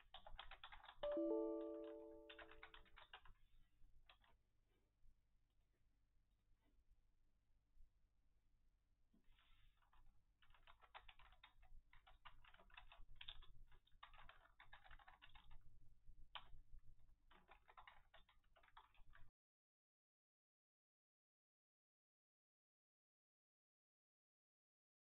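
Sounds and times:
typing on computer keyboard: 0:00.0 - 0:03.4, 0:04.1 - 0:04.4, 0:09.8 - 0:19.3.

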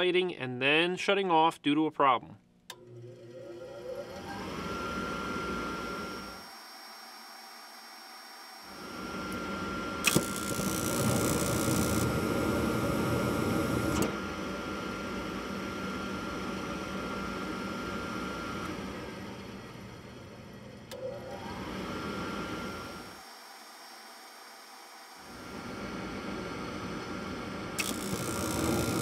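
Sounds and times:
furnace motor running: 0:02.7 - 0:06.7, 0:08.6 - 0:29.0
click: 0:10.0 - 0:10.4, 0:27.8 - 0:28.2.

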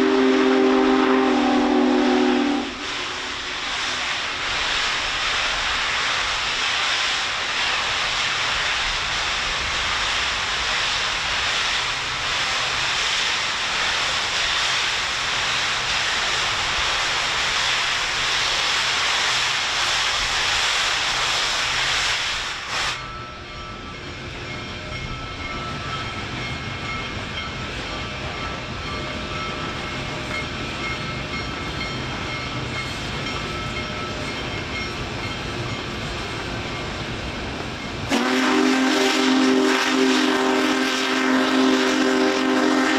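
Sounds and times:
loud steady hiss: 0:00.0 - 0:42.9
train low rumble: 0:00.0 - 0:42.9
thin steady high tones: 0:23.0 - 0:38.1.

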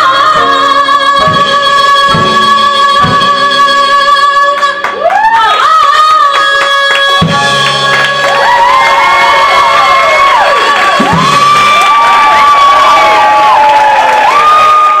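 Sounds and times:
piano bass and drums: 0:00.0 - 0:04.2, 0:07.2 - 0:14.1
woman singing a belted note: 0:00.0 - 0:04.9.

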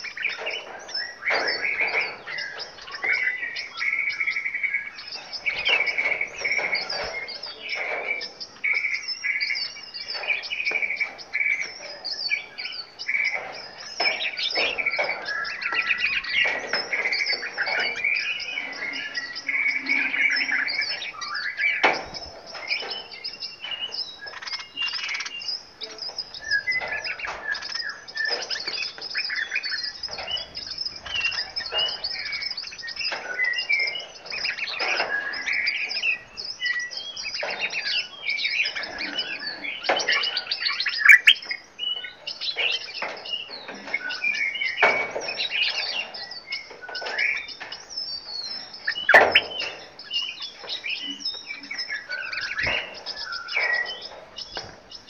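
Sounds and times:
songbirds chirping and singing: 0:00.0 - 0:55.0
sharp clicks: 0:41.0 - 0:41.4.

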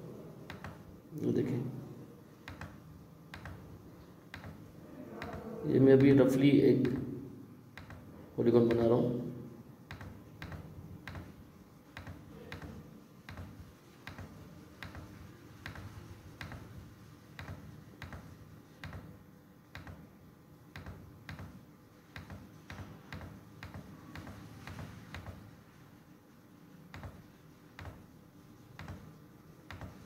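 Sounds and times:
faint steady low hum: 0:00.0 - 0:30.0
computer mouse button clicking: 0:02.4 - 0:03.7, 0:04.3 - 0:04.6, 0:07.7 - 0:08.1, 0:09.9 - 0:16.7, 0:17.4 - 0:19.1, 0:19.7 - 0:20.0, 0:20.7 - 0:25.4.

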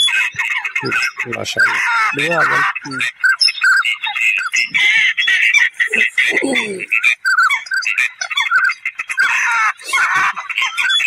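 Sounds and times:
ducks calling: 0:00.0 - 0:11.0.

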